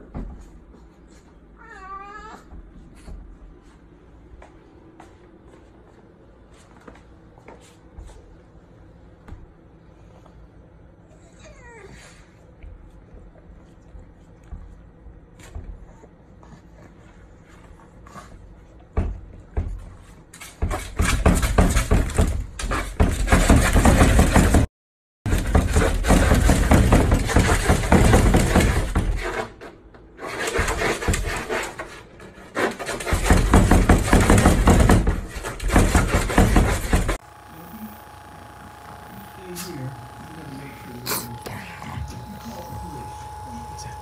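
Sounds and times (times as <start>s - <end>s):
dog claws scratching at door: 20.3s - 24.7s, 25.3s - 37.2s.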